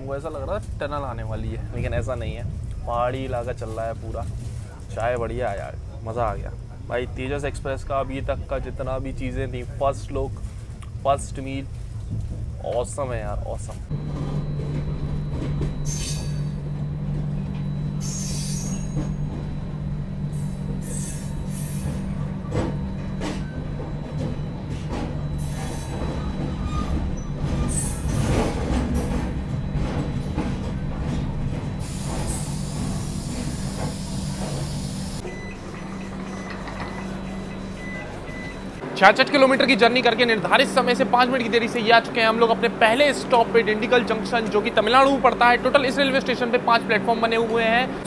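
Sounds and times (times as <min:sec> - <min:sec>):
train rumble and hum: 0:00.0 - 0:48.0
wheels and brakes squealing: 0:14.0 - 0:38.8.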